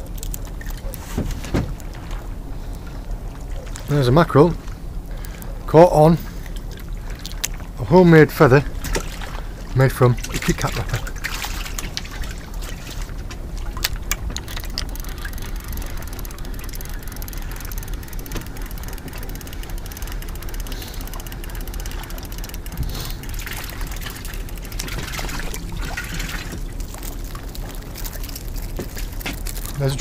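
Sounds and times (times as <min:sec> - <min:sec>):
steady low rumble: 0:00.0 - 0:30.0
fishing reel clicking: 0:13.8 - 0:25.6.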